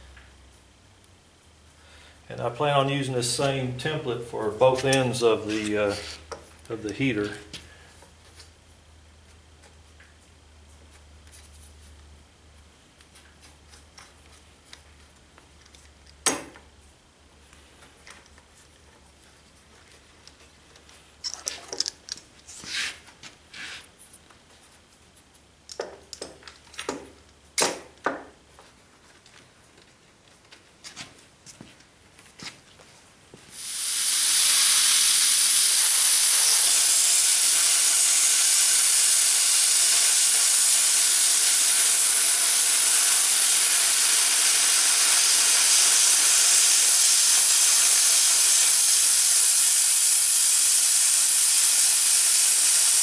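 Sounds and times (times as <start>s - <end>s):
plasma cutter torch hissing: 33.5s - 53.0s.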